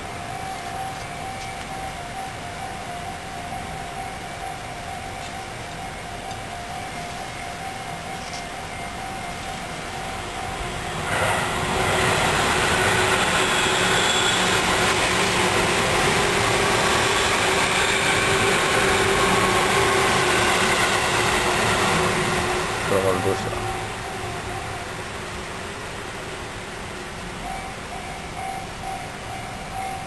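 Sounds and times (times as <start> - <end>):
faint steady tone: 0.0 - 30.0
loud rushing mechanical noise: 9.8 - 27.4.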